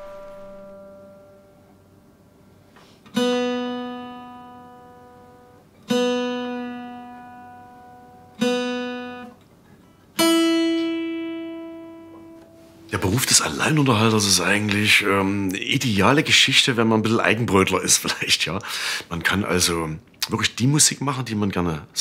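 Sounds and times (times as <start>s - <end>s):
guitar plucked slowly: 0.0s - 2.2s, 3.1s - 12.9s.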